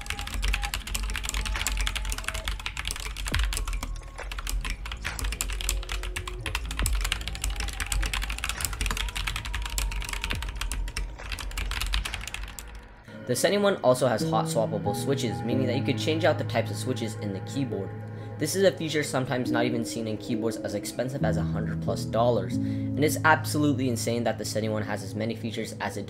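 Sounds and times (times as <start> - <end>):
fast mechanical keyboard typing: 0.0 - 12.8.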